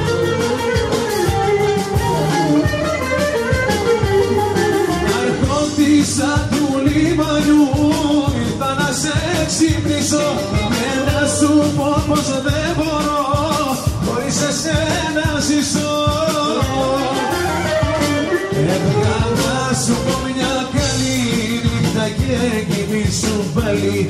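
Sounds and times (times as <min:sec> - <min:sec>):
pop song with bass and drums: 0:00.0 - 0:24.0.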